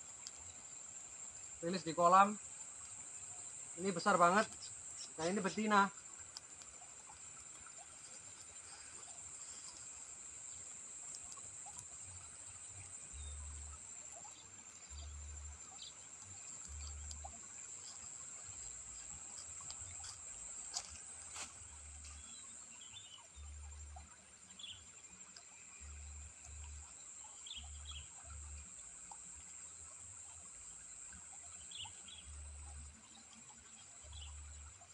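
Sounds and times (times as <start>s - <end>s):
insects chirring: 0.0s - 34.9s
fire crackles: 3.7s - 12.1s.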